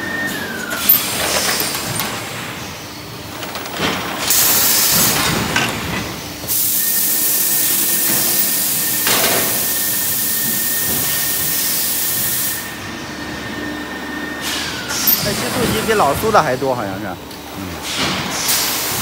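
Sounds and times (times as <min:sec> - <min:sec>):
air hissing: 0:04.2 - 0:12.7.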